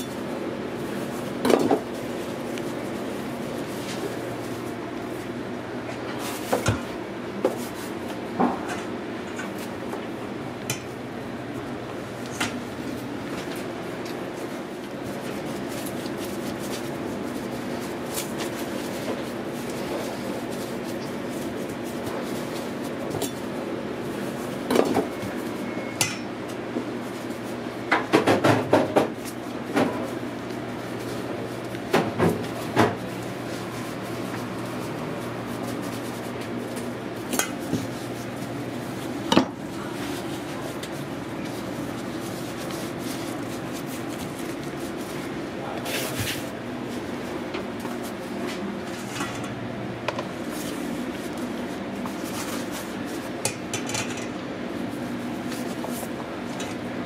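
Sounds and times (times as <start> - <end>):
steady hum: 0.0 - 57.0
pans and utensils clattering: 53.5 - 54.4.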